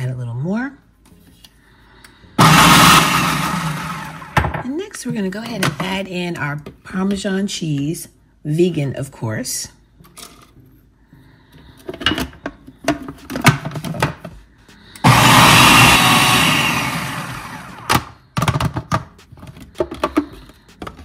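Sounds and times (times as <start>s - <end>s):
food processor motor blending: 2.4s - 4.5s, 15.0s - 18.2s.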